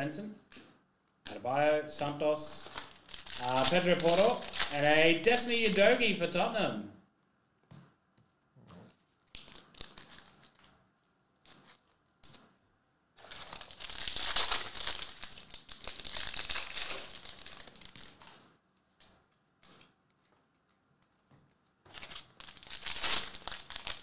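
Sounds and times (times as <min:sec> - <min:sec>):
foil pack rustling: 0:02.5 - 0:05.8, 0:13.2 - 0:18.4, 0:21.9 - 0:24.0
foil wrapper tearing open: 0:02.6 - 0:05.8, 0:09.2 - 0:10.7, 0:13.2 - 0:18.4, 0:21.9 - 0:24.0.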